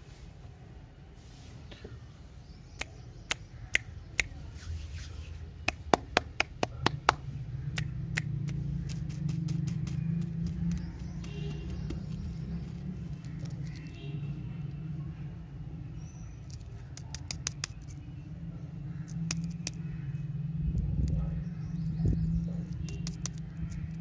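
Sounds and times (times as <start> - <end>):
soft handling of wrapper: 12.1 - 14.0.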